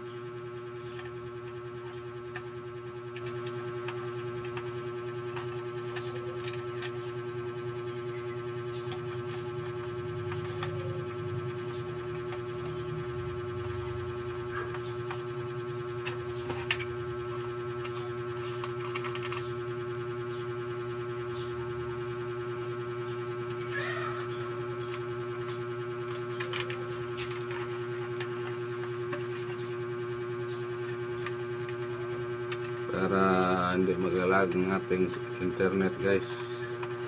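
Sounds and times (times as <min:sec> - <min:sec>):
clicks handling plastic modem: 0:17.8 - 0:19.5, 0:26.1 - 0:29.7.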